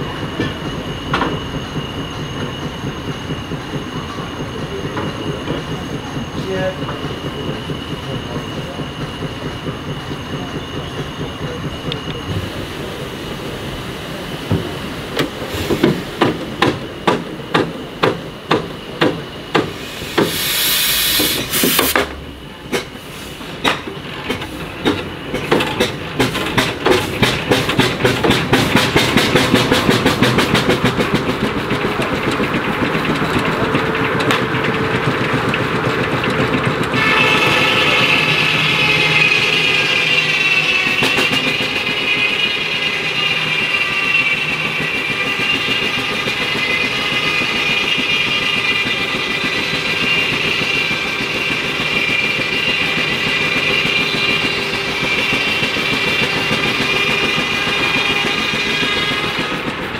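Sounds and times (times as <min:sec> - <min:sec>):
steam engine exhaust beats: 0:00.0 - 0:59.9
steam hiss: 0:00.1 - 0:31.3
circular saw whine: 0:28.8 - 0:59.6.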